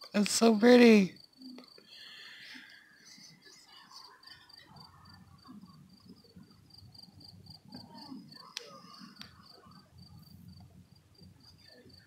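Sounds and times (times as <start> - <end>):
cricket chirping: 0.1 - 12.0.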